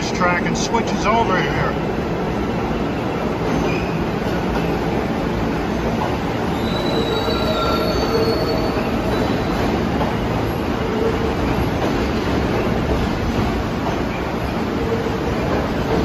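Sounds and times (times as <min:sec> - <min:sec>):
subway train wheels rumbling: 0:00.0 - 0:16.0
high-pitched wheel squeal: 0:06.5 - 0:09.6.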